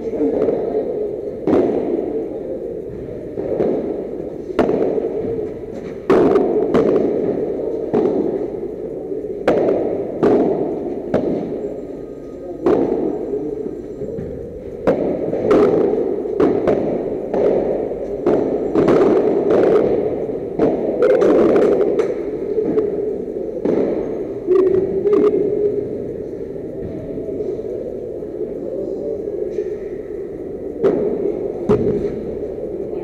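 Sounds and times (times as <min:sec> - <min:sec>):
padel ball hits echoing: 0:02.9 - 0:08.6, 0:09.4 - 0:11.6, 0:14.0 - 0:23.0, 0:30.8 - 0:32.5.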